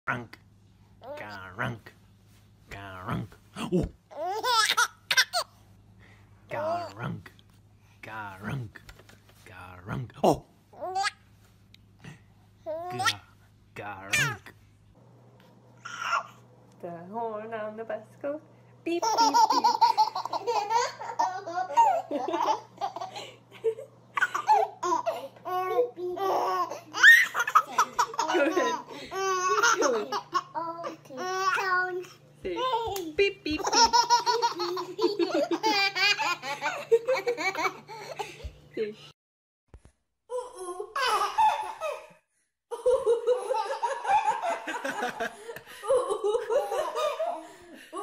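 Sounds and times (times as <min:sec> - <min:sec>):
baby laughing: 0:04.1 - 0:05.6, 0:12.7 - 0:13.3, 0:15.8 - 0:16.4, 0:19.0 - 0:23.3, 0:24.2 - 0:31.8, 0:33.6 - 0:38.4, 0:40.3 - 0:45.3.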